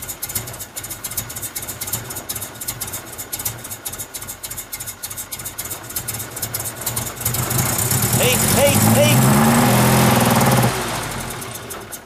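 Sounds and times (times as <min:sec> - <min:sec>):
truck engine idling roughly: 0:00.0 - 0:12.0.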